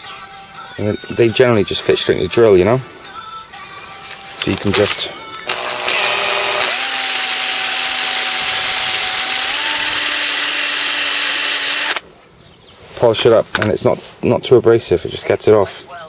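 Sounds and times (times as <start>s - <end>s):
drill motor whine: 5.4s - 12.0s.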